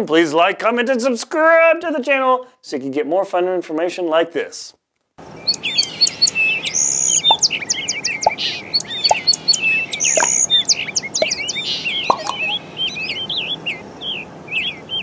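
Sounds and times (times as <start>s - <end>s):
small birds chirping: 5.3s - 15.0s.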